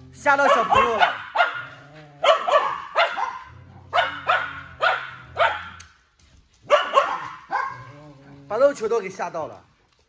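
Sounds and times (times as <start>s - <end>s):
dogs barking: 0.2s - 6.0s, 6.6s - 8.2s.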